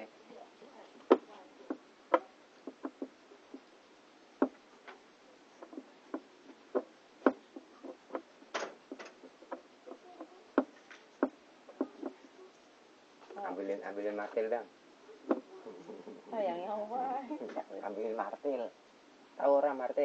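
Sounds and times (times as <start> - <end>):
light clicks and knocks: 1.0 - 3.7, 5.6 - 12.3.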